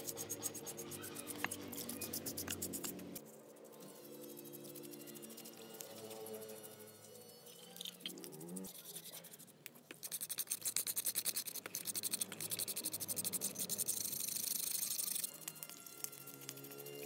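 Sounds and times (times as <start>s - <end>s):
brush scrubbing wet metal: 0.0s - 6.7s, 8.7s - 15.3s.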